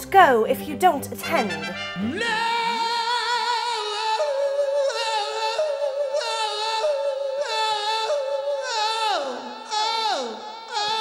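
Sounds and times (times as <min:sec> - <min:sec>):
man singing high wailing notes: 0:01.8 - 0:11.0.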